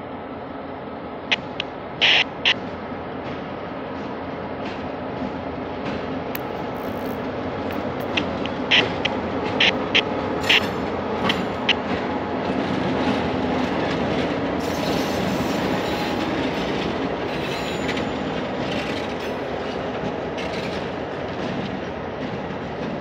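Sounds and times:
diesel locomotive engines running: 0.0 - 23.0
steel wheels on rails: 4.6 - 23.0.

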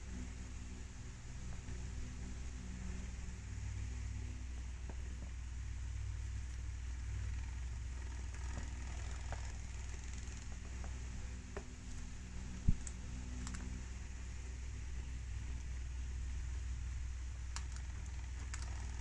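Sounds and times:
steady low hum: 0.0 - 19.0
small crunching clicks: 17.5 - 19.0.

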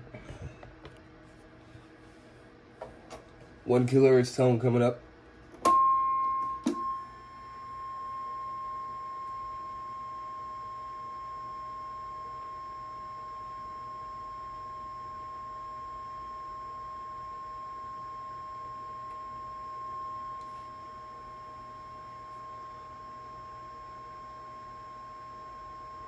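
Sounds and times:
sine test tone: 5.5 - 26.0.

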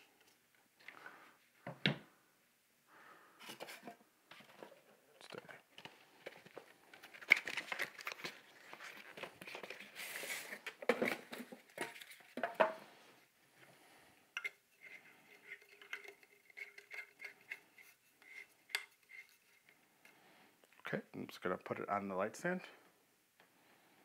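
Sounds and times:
cardboard and styrofoam rustling: 6.2 - 12.4.

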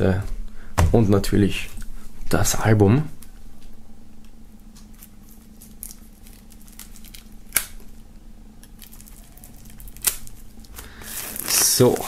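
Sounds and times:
knife scratching plastic wrap: 8.8 - 12.0.

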